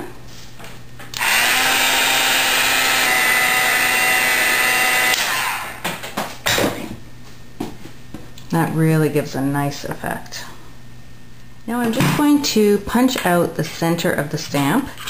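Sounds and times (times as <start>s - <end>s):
heat gun fan whirring: 1.0s - 6.4s.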